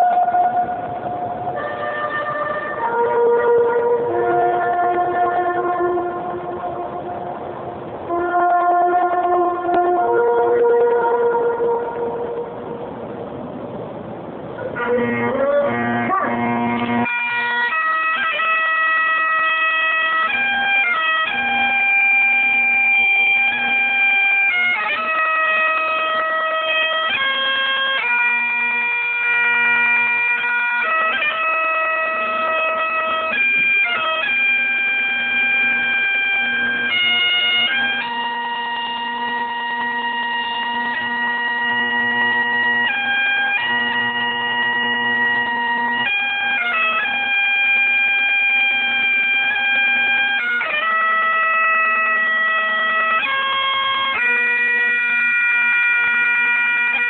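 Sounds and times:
bagpipes playing slow tune: 0:00.0 - 0:07.3, 0:14.8 - 0:57.0.

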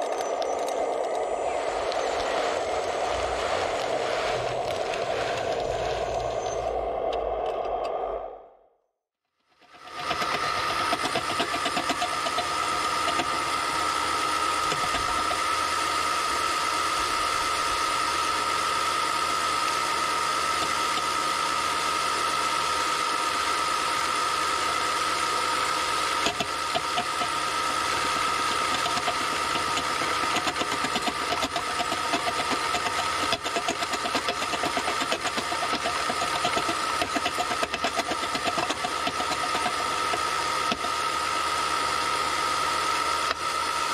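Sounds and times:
high whine of small electric motors: 0:00.0 - 0:08.5, 0:09.4 - 0:43.9
fast fine rattle: 0:09.6 - 0:16.2, 0:23.4 - 0:41.6.

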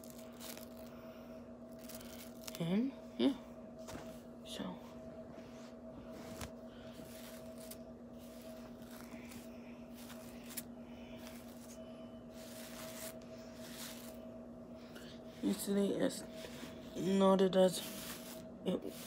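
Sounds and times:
hairbrush strokes through wet hair: 0:06.2 - 0:14.2, 0:17.2 - 0:19.0.

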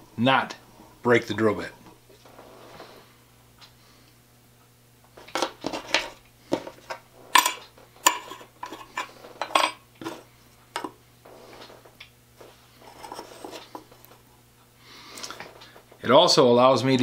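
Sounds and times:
metal parts clinking on metal: 0:07.4 - 0:09.8.

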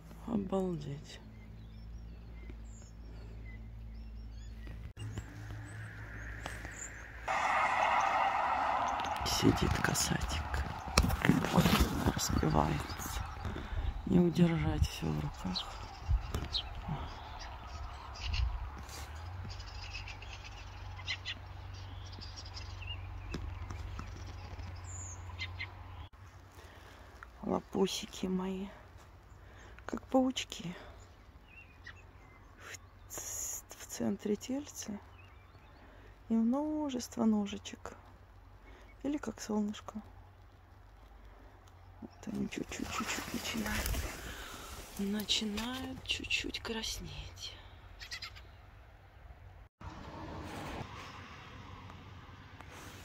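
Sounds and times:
songbird singing: 0:00.0 - 0:26.2, 0:26.8 - 0:40.4
small birds chirping: 0:00.0 - 0:48.7
deep low rumble: 0:03.2 - 0:19.3.

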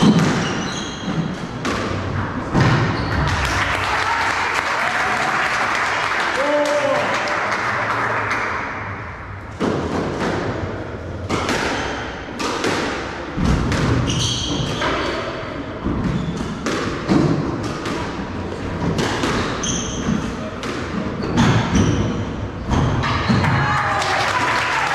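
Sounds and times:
shoes squeaking on wooden floor: 0:00.0 - 0:01.6, 0:02.8 - 0:03.3, 0:14.0 - 0:15.1, 0:16.0 - 0:16.6, 0:19.4 - 0:20.4
squash ball impacts: 0:00.0 - 0:03.6, 0:09.3 - 0:23.6
applause: 0:03.3 - 0:08.6, 0:23.6 - 0:24.9.

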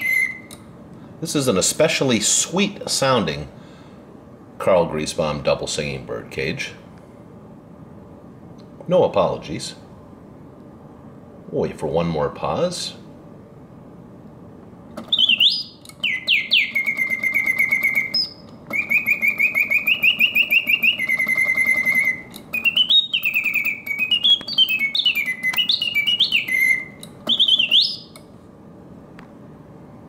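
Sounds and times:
mechanical bird whistling: 0:00.0 - 0:00.6, 0:15.0 - 0:28.2.

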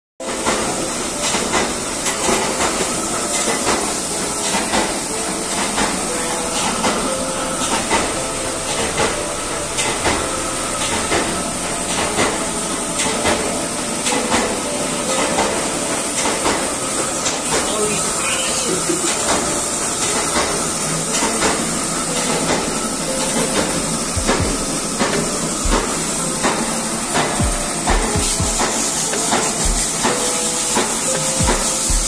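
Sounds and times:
air compressor hissing: 0:00.4 - 0:32.0.

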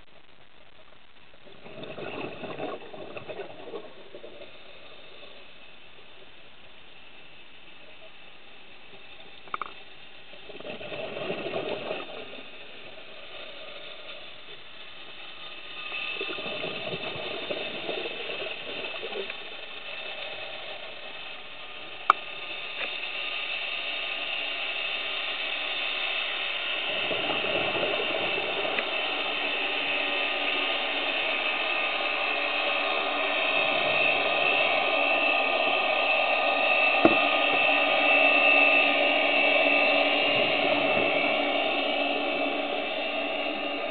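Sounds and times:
mechanical hum with whine: 0:00.0 - 0:43.9
underwater exhaled bubbles: 0:01.3 - 0:06.4, 0:09.3 - 0:21.2, 0:26.8 - 0:35.8.

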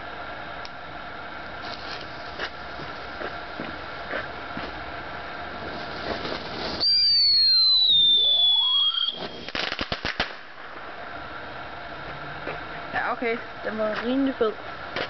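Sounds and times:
firework fountain: 0:00.0 - 0:12.0
crackling pops: 0:05.7 - 0:10.8
whistle sliding lower in pitch: 0:06.8 - 0:09.6.

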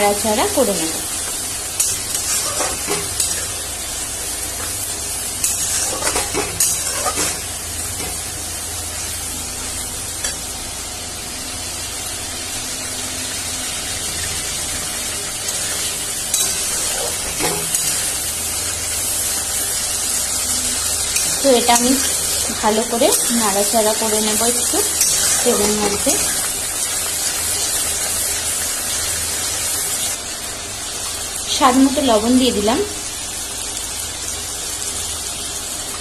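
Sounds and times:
paste sizzling in hot oil: 0:00.0 - 0:11.1, 0:11.8 - 0:36.0
metal spatula scraping a pan: 0:01.8 - 0:03.7, 0:05.4 - 0:07.4.

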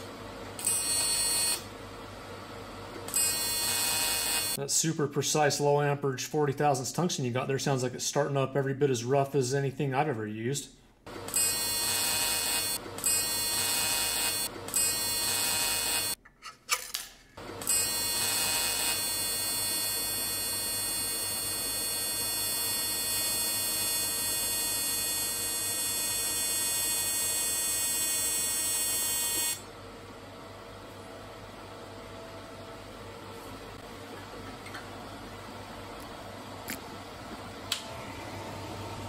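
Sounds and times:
welding arc buzzing: 0:00.0 - 0:01.7, 0:03.0 - 0:04.6, 0:11.2 - 0:16.2, 0:17.5 - 0:29.6.

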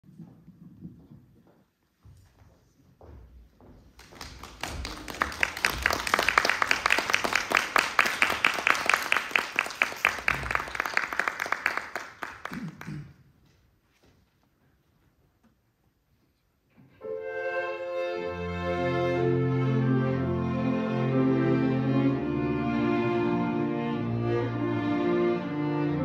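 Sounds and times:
audience applauding: 0:04.0 - 0:13.3.

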